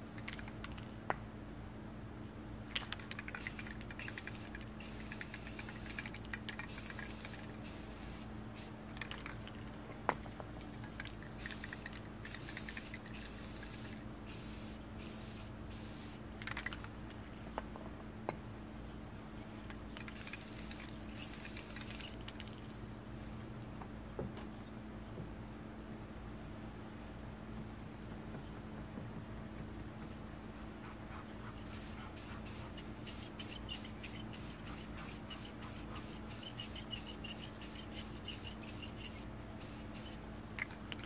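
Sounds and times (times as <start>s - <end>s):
insects droning: 0.0s - 41.0s
small sharp clicks: 0.2s - 0.9s, 2.7s - 7.5s, 16.4s - 17.0s, 19.6s - 22.6s, 39.8s - 41.0s
spray can hissing: 2.8s - 9.2s, 11.4s - 16.2s, 20.0s - 22.1s, 31.7s - 40.2s.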